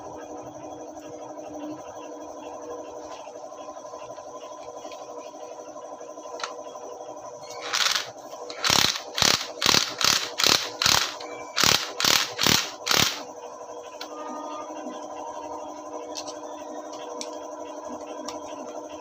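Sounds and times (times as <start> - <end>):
impact wrench bursts: 7.6 - 13.2.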